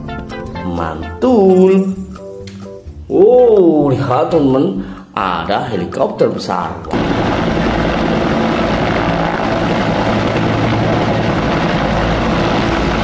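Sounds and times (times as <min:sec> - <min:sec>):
helicopters hovering: 0:07.0 - 0:13.0.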